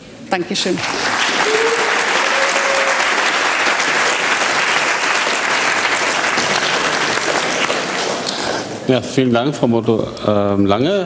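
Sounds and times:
audience applauding: 0.8 - 8.9.

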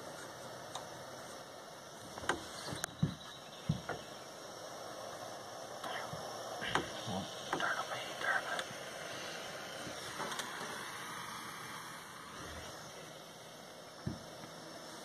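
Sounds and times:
propane torch hissing: 0.0 - 15.0
light taps and knocks: 2.2 - 4.1, 14.0 - 14.3.

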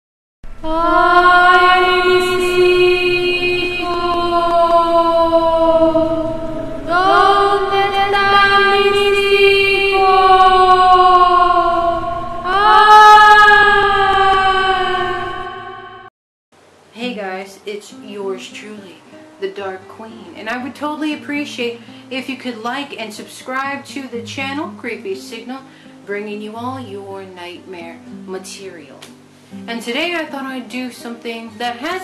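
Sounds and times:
wordless vocal chant: 0.6 - 16.1.

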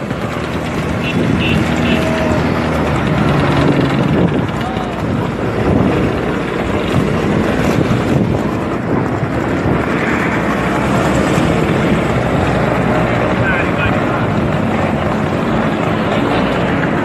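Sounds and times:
motorcycle engine running: 0.0 - 12.3
scooter engines: 0.0 - 17.0
wind buffeting microphone: 0.0 - 17.0.

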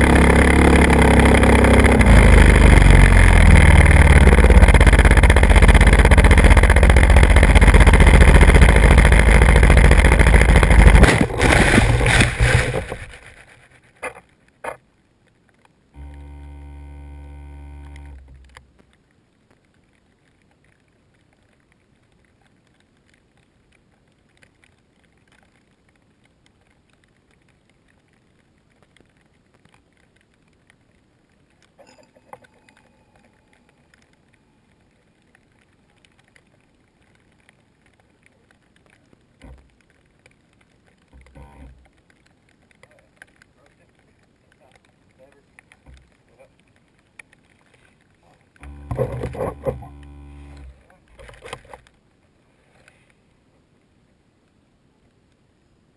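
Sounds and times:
model aircraft motor and wind: 0.0 - 13.6
steady pitched hum: 0.0 - 14.2, 15.9 - 18.7, 48.6 - 51.4
clicks: 17.6 - 19.7, 28.8 - 51.9.

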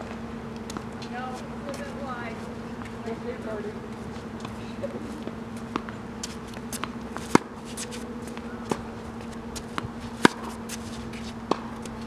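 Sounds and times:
low hum: 0.0 - 12.0
racquet striking tennis ball: 5.3 - 10.9.

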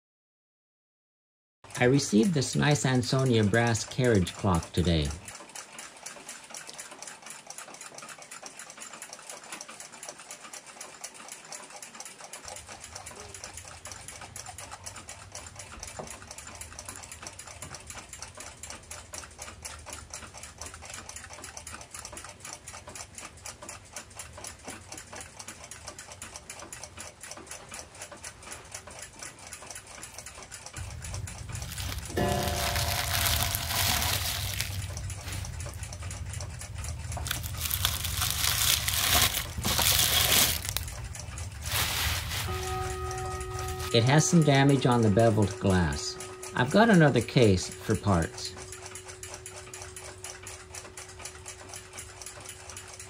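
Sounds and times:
clocks ticking: 1.7 - 33.9, 34.7 - 39.4, 42.6 - 53.0
low hum: 30.8 - 44.0.

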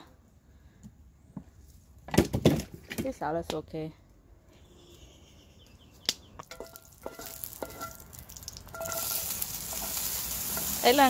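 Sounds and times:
vegetables sizzling in oil: 6.6 - 11.0.

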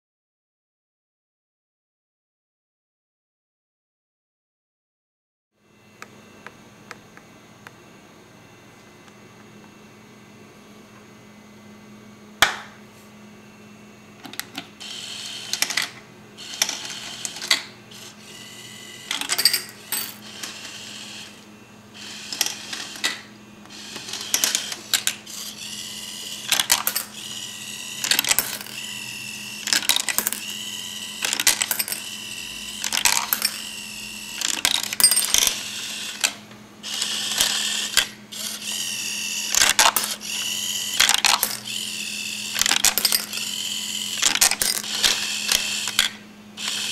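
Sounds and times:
servos whining: 14.8 - 46.9
candies clattering into bowls: 26.5 - 27.2, 29.7 - 30.5, 41.0 - 41.7.

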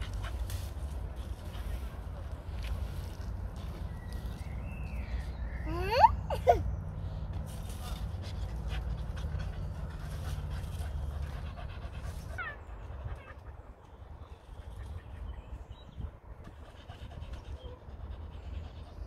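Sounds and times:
dog panting: 7.8 - 13.5, 16.4 - 19.0.

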